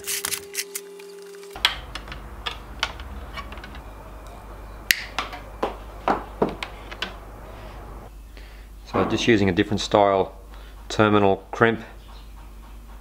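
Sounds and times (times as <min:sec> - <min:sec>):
side cutters snapping cable: 0:04.9 - 0:05.4.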